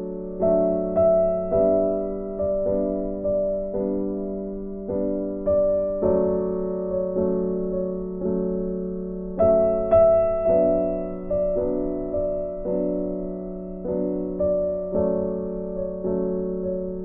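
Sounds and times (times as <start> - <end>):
slow piano chords: 0.0 - 17.0.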